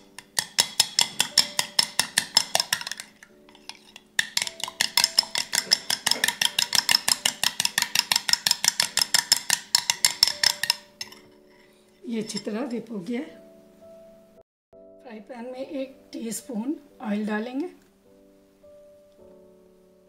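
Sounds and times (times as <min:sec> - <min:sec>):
spoon clinking against glass bowl: 0:00.0 - 0:11.4.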